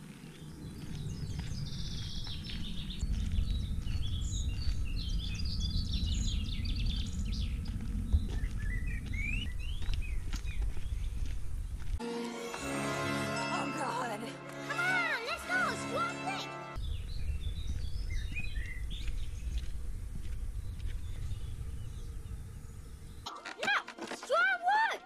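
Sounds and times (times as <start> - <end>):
songbirds singing: 0.0 - 11.9, 15.8 - 23.3
low rumble on microphone: 0.4 - 12.0, 16.8 - 23.2.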